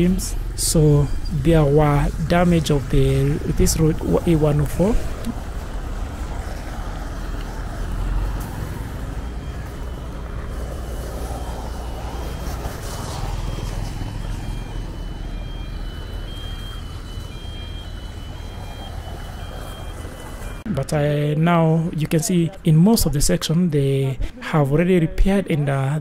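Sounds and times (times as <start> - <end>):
faint high beeping tone: 0.0 - 5.5, 8.0 - 20.8
cars and motorcycles passing: 0.0 - 23.1.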